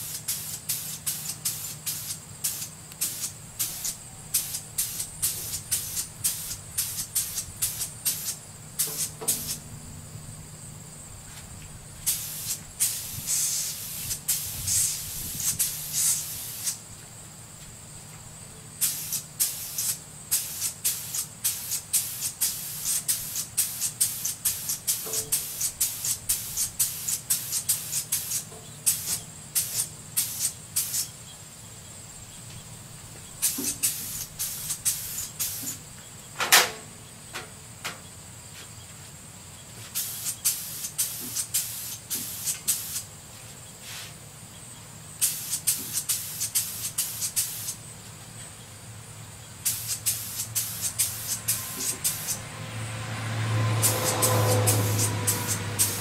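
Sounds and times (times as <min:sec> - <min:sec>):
paint spray gun hissing: 0:00.0 - 0:09.8, 0:12.0 - 0:16.9, 0:18.8 - 0:31.2, 0:33.3 - 0:35.9, 0:39.8 - 0:43.2, 0:43.8 - 0:44.2, 0:45.1 - 0:48.0, 0:49.6 - 0:52.5, 0:53.8 - 0:56.0.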